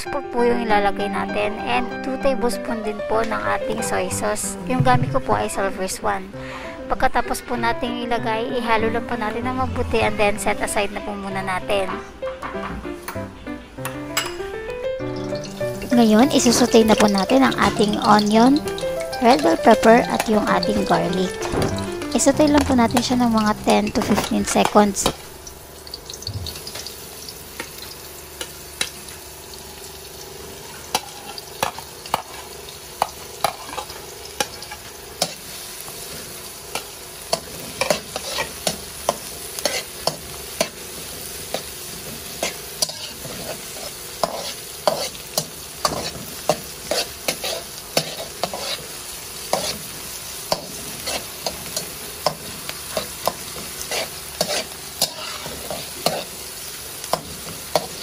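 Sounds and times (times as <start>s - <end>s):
vegetables sizzling in oil: 13.0s - 58.0s
spatula scraping wok: 33.4s - 58.0s.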